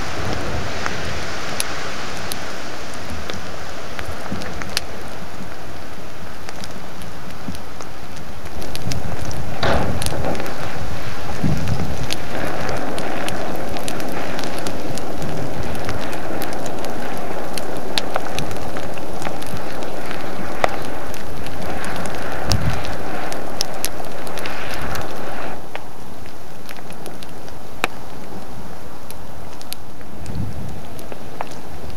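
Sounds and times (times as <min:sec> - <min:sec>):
rushing hiss of steam: 0:00.0 - 0:26.6
sharp cracks: 0:06.3 - 0:28.4
deep booms: 0:09.5 - 0:12.6.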